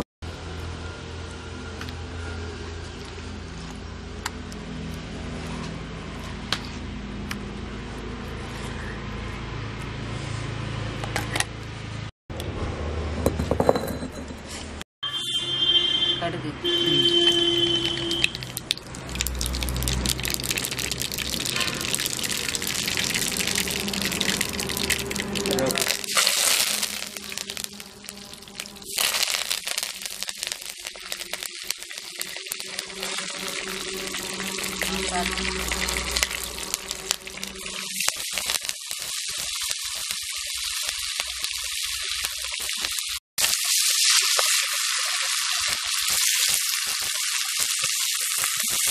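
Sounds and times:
stone on stone knocks and scrapes: 13.2 - 14.5
leaves frying in oil: 16.9 - 48.9
crackling pops: 24.6 - 33.5, 36.6 - 43.6
low rumble: 32.2 - 37.9.

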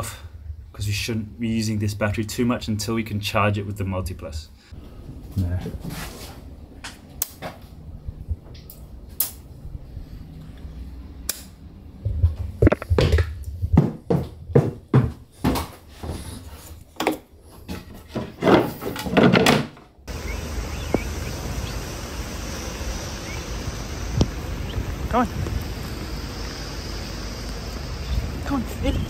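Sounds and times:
wind: 0.0 - 29.0
wooden doors knocking and clattering: 17.0 - 20.0
rain hiss: 20.1 - 29.0.

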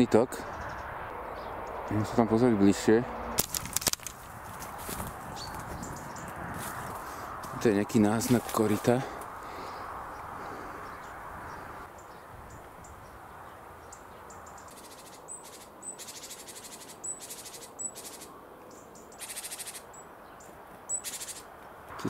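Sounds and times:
footsteps crunching through dry leaves: 3.4 - 9.2.

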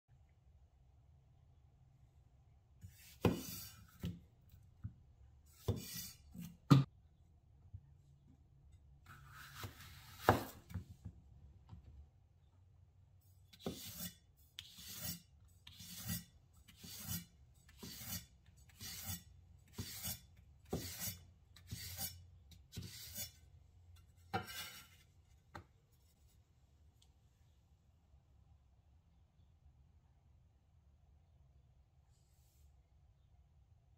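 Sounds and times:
knife slicing zucchini on board: 3.0 - 4.2, 9.2 - 10.8, 13.6 - 17.2, 17.8 - 22.1.

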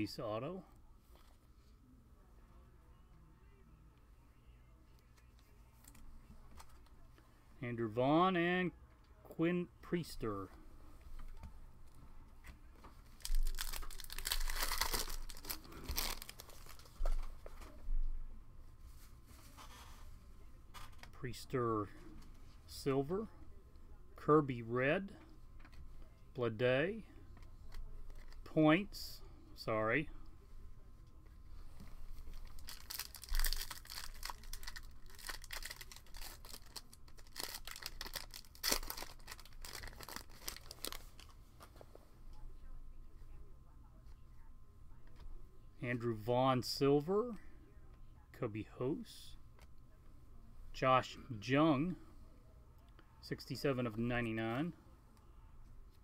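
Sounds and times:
foil pack crinkling and tearing: 13.2 - 16.9, 32.3 - 41.3.

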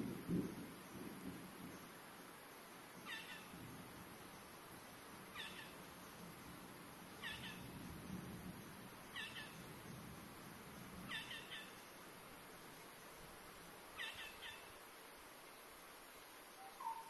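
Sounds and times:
steady high hiss: 0.0 - 17.0
animal call: 16.6 - 17.0.

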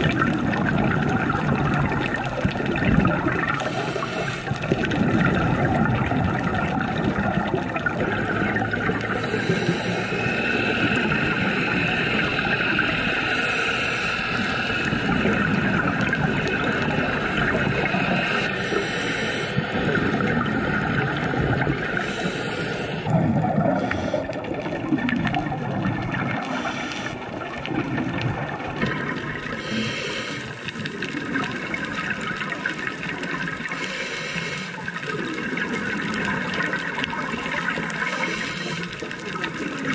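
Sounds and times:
scuba bubbles: 0.0 - 39.9
underwater water rushing: 0.0 - 39.9.

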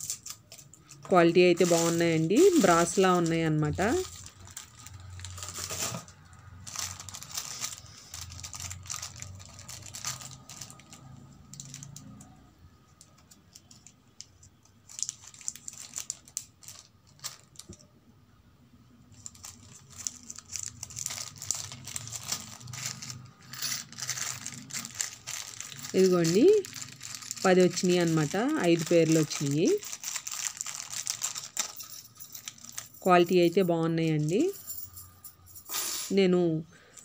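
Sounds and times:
small metal pieces rattling: 0.0 - 6.1, 19.2 - 35.6
plastic packet crinkling and tearing: 0.0 - 12.4, 13.0 - 17.8, 19.1 - 33.1.

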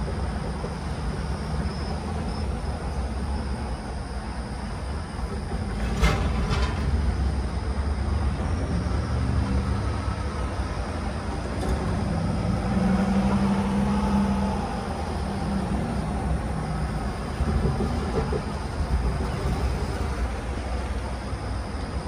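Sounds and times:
cars passing: 9.2 - 16.7.

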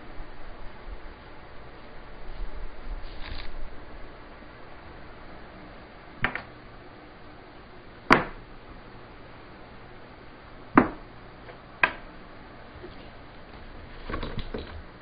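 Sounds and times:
steady low hiss: 0.0 - 15.0
knocks on wooden workbench: 10.8 - 11.0.

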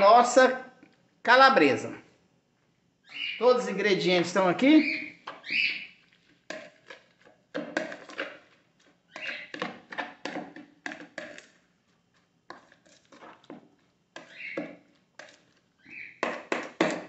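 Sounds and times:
squelching batter: 3.0 - 17.0
metal spoon scraping a bowl: 5.3 - 11.6, 12.5 - 13.6, 14.2 - 15.6.

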